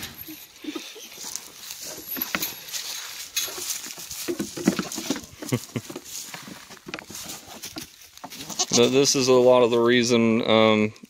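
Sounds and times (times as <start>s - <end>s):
goats making low sounds: 0.0s - 1.9s
hooves tapping on wooden boards: 3.5s - 8.4s.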